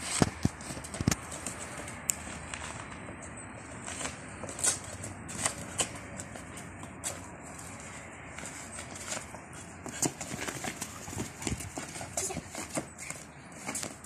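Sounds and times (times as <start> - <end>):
shoes scuffing on concrete: 0.0 - 14.0
dog claws clicking on concrete: 3.9 - 14.0.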